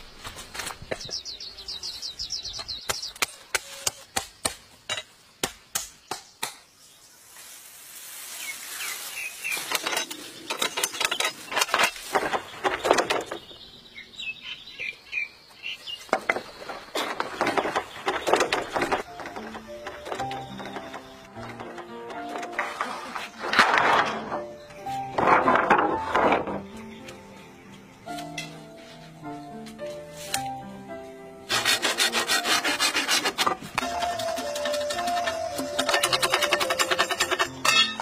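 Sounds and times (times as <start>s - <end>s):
birds chirping: 0.8s - 3.8s, 8.4s - 23.5s, 26.5s - 29.6s
bamboo leaves rustling and crackling: 6.8s - 13.4s
blade chopping bamboo: 31.5s - 38.0s.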